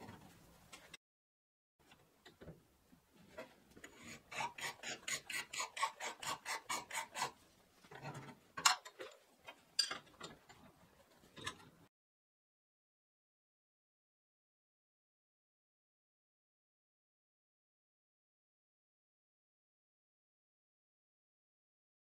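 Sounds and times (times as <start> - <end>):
hand tool scraping steel: 3.8 - 8.9.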